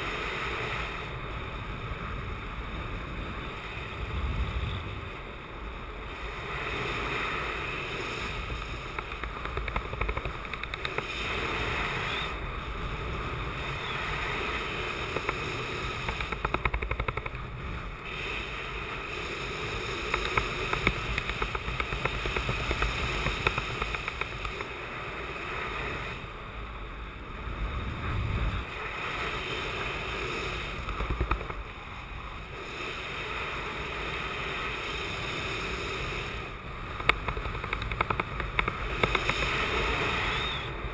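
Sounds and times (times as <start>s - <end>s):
wind buffeting microphone: 1.4s - 24.9s, 27.1s - 32.6s.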